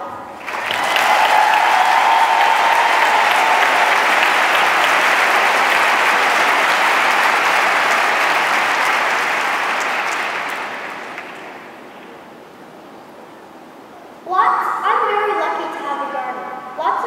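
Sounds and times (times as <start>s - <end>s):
large audience applauding: 0.4s - 12.2s.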